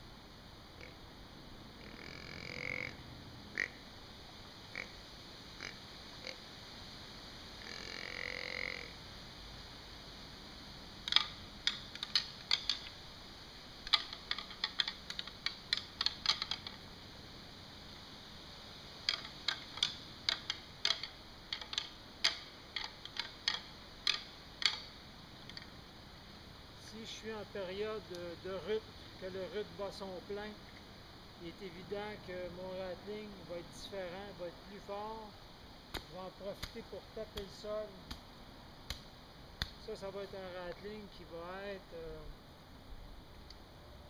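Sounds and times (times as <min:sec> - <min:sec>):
grunt-like deer call: 0:00.8 - 0:01.0, 0:01.8 - 0:03.9, 0:04.7 - 0:05.0, 0:05.6 - 0:06.4, 0:07.6 - 0:09.0
antlers tapped together: 0:11.1 - 0:13.0, 0:13.8 - 0:16.8, 0:19.1 - 0:24.9.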